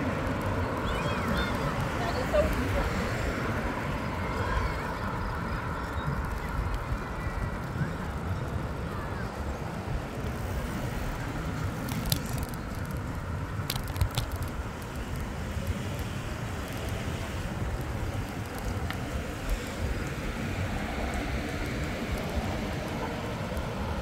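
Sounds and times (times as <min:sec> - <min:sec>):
background traffic: 0:00.0 - 0:24.0
bicycle tyres rumbling: 0:00.0 - 0:24.0
bike clicking over brick paving: 0:00.0 - 0:24.0
wind on microphone: 0:00.0 - 0:24.0.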